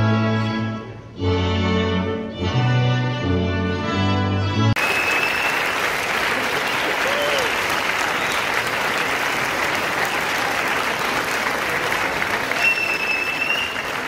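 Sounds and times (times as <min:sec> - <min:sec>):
string ensemble music: 0:00.0 - 0:04.8
audience applauding: 0:04.8 - 0:14.0.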